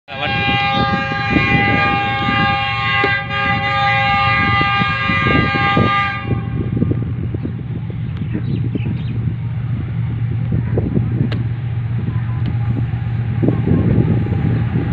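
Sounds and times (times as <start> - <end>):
locomotive horn blast: 0.1 - 7.1
low rumbling: 0.1 - 14.9.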